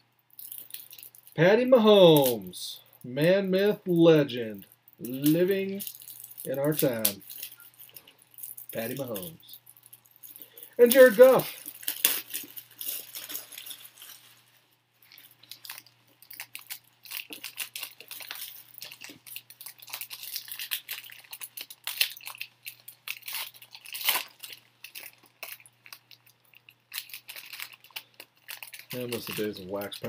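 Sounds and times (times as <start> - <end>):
packaging crinkling and rustling: 0.4 - 1.4, 4.6 - 30.0.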